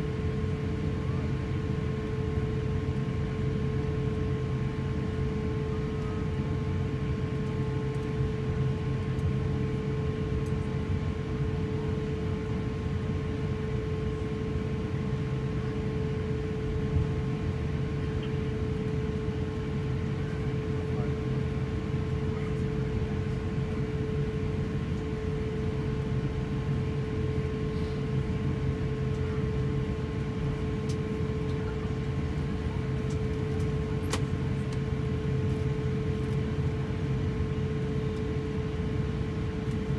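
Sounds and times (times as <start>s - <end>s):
airliner cabin rumble: 0.0s - 39.9s
droning jet engines idling: 0.0s - 39.9s.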